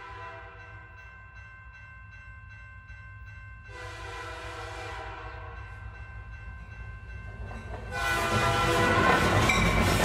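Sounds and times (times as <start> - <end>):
train rumble: 3.6 - 10.0
train horn blast: 3.7 - 5.6, 7.9 - 10.0
train wheels clattering: 7.1 - 10.0.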